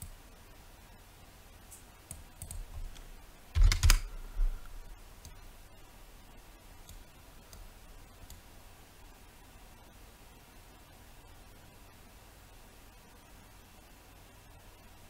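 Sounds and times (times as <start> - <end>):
keyboard and mouse clicks: 1.7 - 4.2, 6.8 - 8.5.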